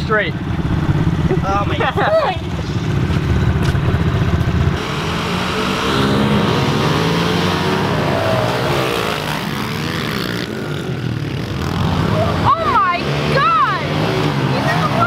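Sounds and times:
pit bike engines revving: 0:00.0 - 0:15.0.

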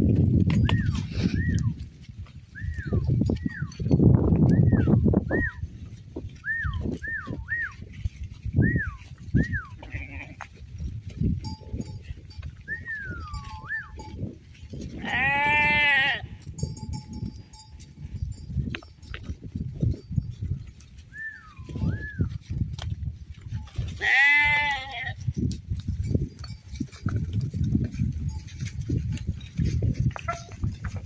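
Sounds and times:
loud animal bleat: 0:09.8 - 0:10.5, 0:15.0 - 0:16.4, 0:23.9 - 0:25.2
faint bell tinkling: 0:11.2 - 0:14.6, 0:16.4 - 0:21.0, 0:25.3 - 0:30.9.

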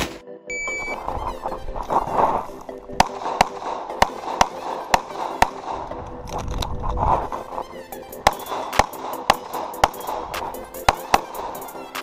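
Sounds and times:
pistol shots: 0:03.0 - 0:06.0, 0:08.2 - 0:11.6.

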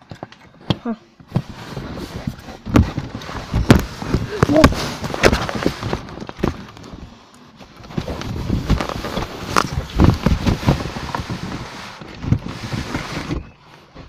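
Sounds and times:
cardboard box dragged across floor: 0:01.3 - 0:06.1, 0:07.7 - 0:14.0.

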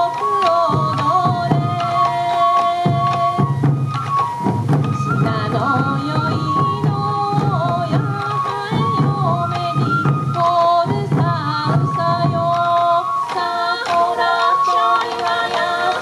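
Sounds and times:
taiko drums struck: 0:02.8 - 0:10.4.

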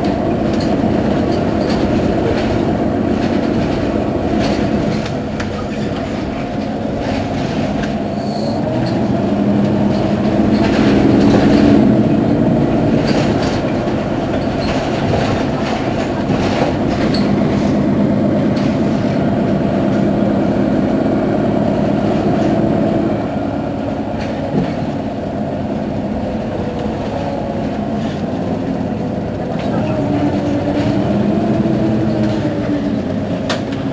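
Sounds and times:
bus engine humming: 0:00.0 - 0:33.9.

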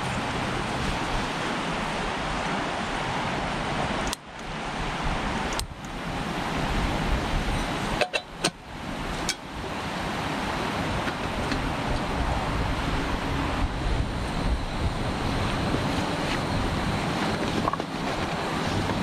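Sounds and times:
creek rushing: 0:00.0 - 0:19.0
camp stove clicks and clinks: 0:04.0 - 0:04.5, 0:07.6 - 0:08.6, 0:09.2 - 0:09.5, 0:11.0 - 0:12.0.

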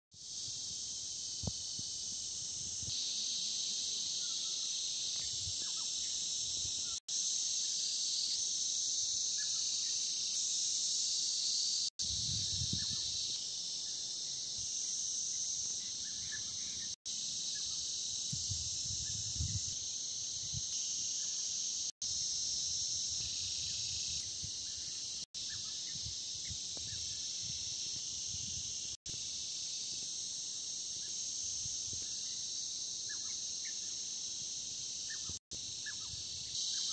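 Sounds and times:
insects shrilling: 0:00.2 - 0:36.9.

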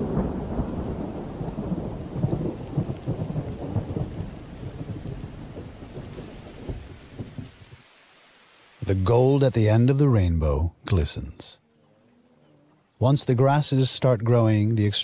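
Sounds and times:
rolling thunder rumbling: 0:00.0 - 0:07.6.

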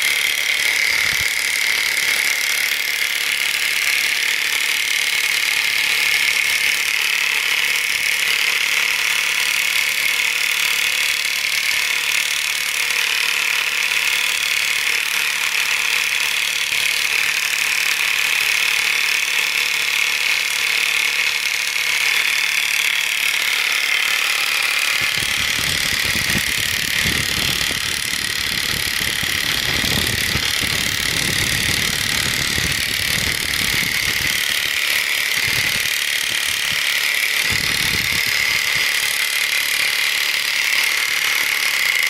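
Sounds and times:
machine high whine: 0:00.0 - 0:06.3, 0:21.8 - 0:42.0
blade scraping concrete floor: 0:00.0 - 0:42.0.

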